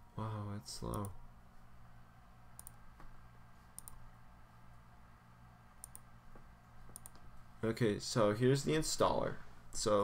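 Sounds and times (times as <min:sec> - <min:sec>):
low electrical hum: 0:00.0 - 0:10.0
computer mouse clicks: 0:00.8 - 0:01.2, 0:02.5 - 0:02.8, 0:03.7 - 0:04.0, 0:05.8 - 0:07.3.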